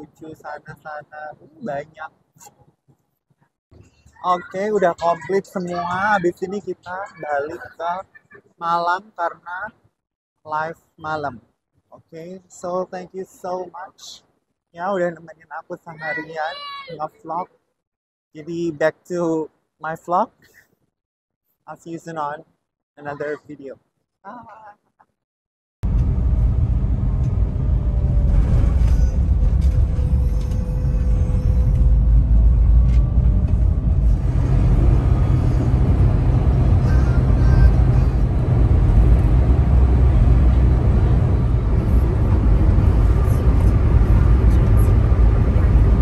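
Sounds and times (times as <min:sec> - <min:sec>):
car road and engine noise: 0:03.8 - 0:09.6, 0:25.8 - 0:46.0.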